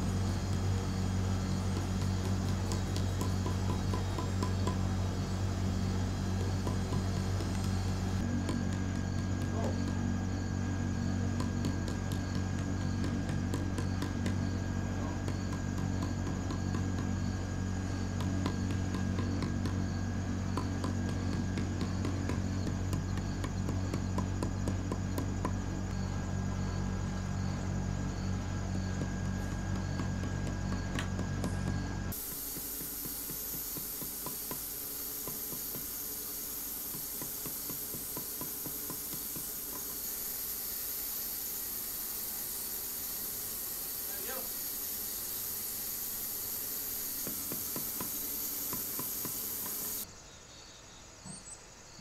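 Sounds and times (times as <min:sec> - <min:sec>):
steady low hum: 0:00.0 - 0:52.0
steady hiss: 0:32.1 - 0:50.1.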